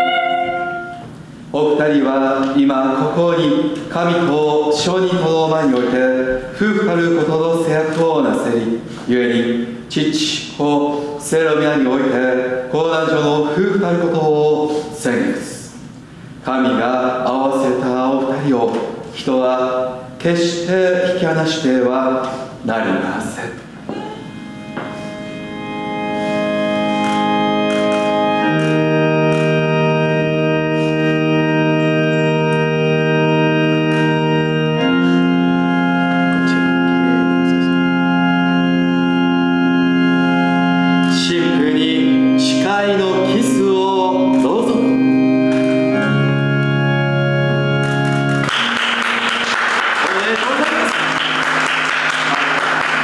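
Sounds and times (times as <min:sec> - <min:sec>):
organ playing sustained chords: 0:00.0 - 0:53.0
applause: 0:48.0 - 0:53.0.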